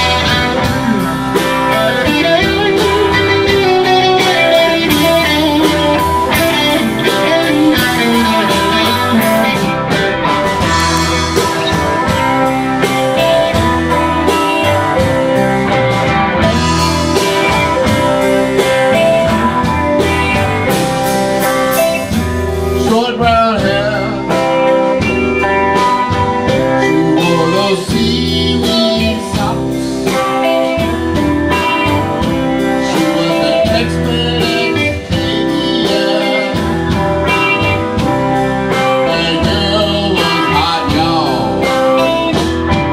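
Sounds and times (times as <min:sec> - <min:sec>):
man singing: 0:00.0 - 0:09.9, 0:22.0 - 0:25.2, 0:26.4 - 0:31.0, 0:31.6 - 0:42.5
drums: 0:00.0 - 0:42.9
electric bass: 0:00.0 - 0:42.9
electric guitars: 0:00.0 - 0:42.9.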